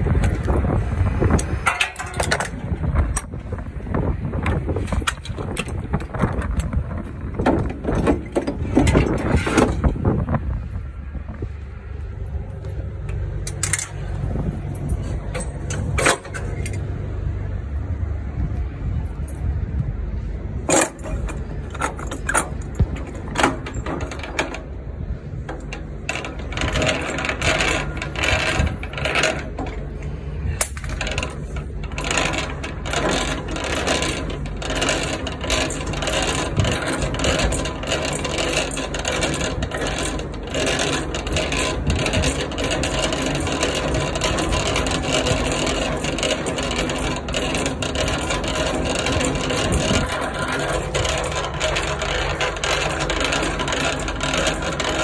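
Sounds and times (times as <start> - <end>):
low rumble: 0.0 - 55.0.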